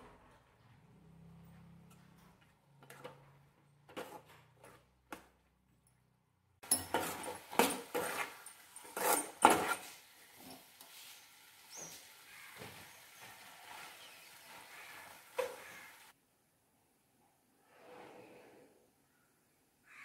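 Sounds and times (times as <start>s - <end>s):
metal spoon scraping pan: 3.9s - 4.8s, 6.6s - 10.8s.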